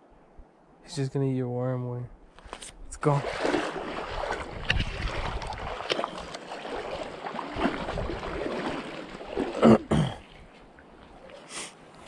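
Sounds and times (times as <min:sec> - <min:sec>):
creek water rushing: 0:03.0 - 0:12.0
wind on microphone: 0:03.2 - 0:06.1, 0:07.5 - 0:08.5.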